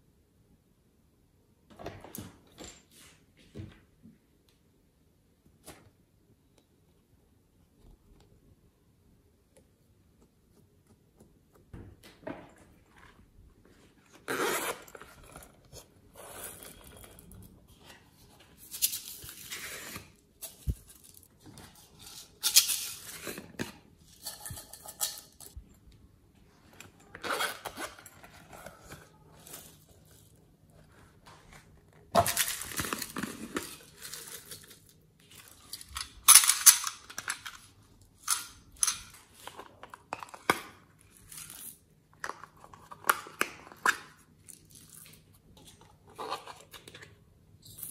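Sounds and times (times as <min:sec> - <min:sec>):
zipper pulls: 0:14.2 - 0:17.1.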